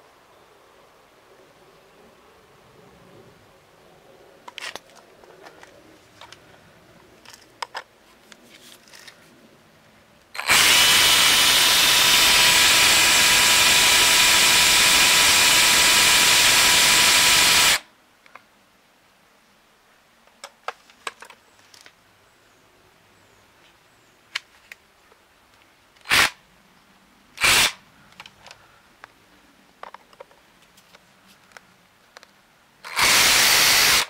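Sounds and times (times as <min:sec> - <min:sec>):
rotary hammer drilling concrete: 0:10.4 - 0:17.8, 0:26.1 - 0:26.3, 0:27.4 - 0:27.8, 0:32.9 - 0:34.0.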